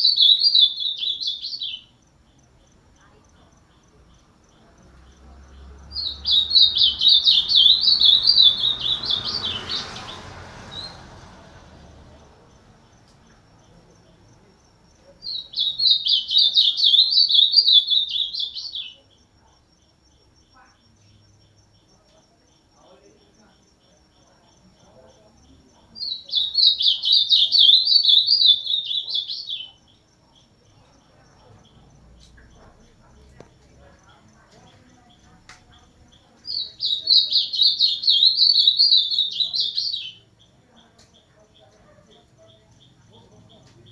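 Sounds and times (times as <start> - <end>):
bird singing whistled notes: 0.0 - 2.0, 5.9 - 11.0, 15.2 - 19.1, 26.0 - 29.8, 36.5 - 40.3.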